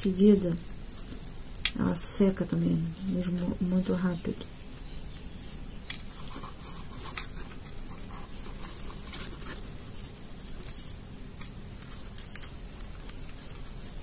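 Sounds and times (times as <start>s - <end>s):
dry crackling and rustling: 0.0s - 14.0s.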